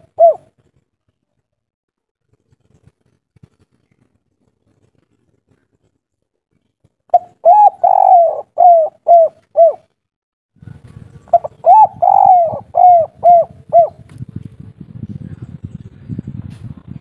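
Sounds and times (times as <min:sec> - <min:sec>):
dove cooing: 0:00.0 - 0:00.6, 0:07.1 - 0:09.9, 0:11.3 - 0:14.0.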